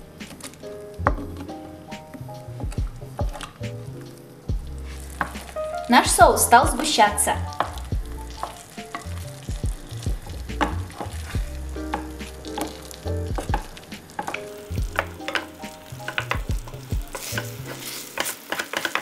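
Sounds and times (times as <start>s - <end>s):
soft sizzle: 0.0s - 19.0s
wooden spatula scraping a pan: 4.7s - 19.0s.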